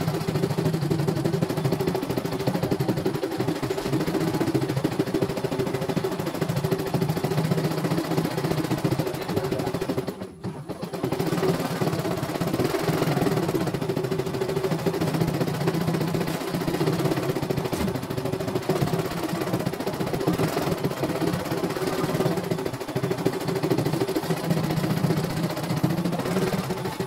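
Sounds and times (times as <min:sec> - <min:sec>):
embroidery machine needle rattling: 0:00.0 - 0:27.0.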